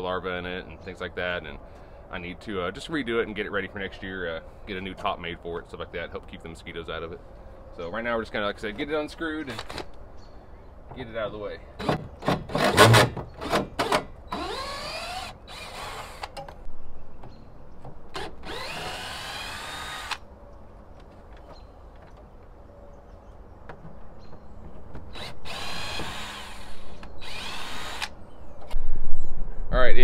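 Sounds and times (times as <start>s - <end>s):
cordless drill spinning: 14.4s - 16.4s, 18.2s - 20.2s, 25.1s - 28.1s.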